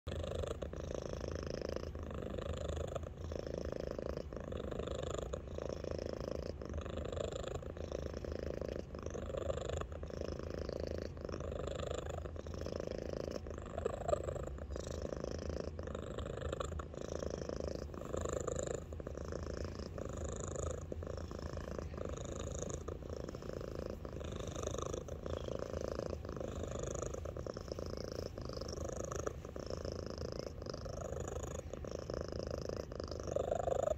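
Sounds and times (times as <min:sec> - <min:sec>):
cat purring: 0:00.0 - 0:33.9.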